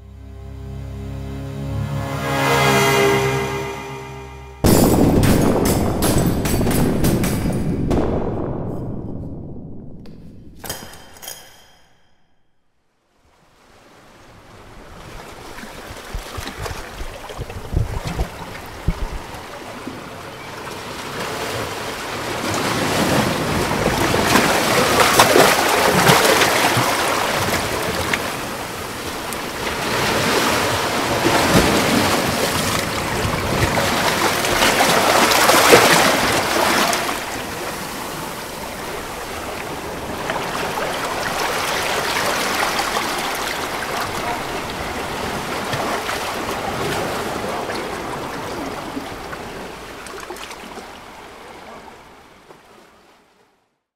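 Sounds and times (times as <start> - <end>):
sea waves on rocky shore: 13.3 - 53.2.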